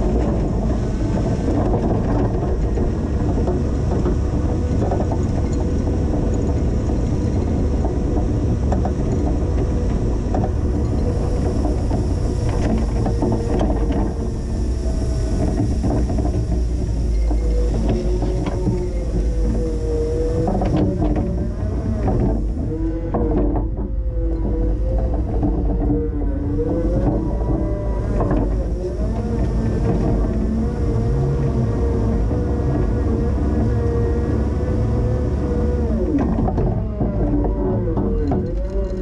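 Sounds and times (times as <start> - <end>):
forklift engine running: 0.0 - 38.6.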